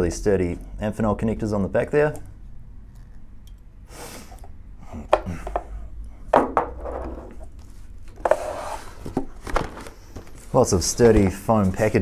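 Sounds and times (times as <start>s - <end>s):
sharp knocks on a table: 6.4s - 7.1s.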